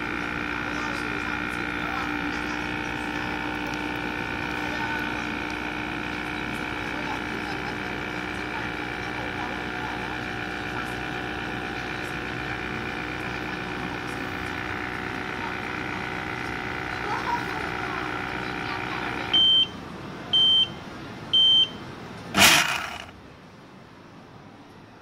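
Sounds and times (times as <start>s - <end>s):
blender vacuum pump humming: 0.0s - 19.7s, 22.3s - 23.2s
short high beeps: 19.3s - 19.8s, 20.4s - 20.8s, 21.4s - 21.8s.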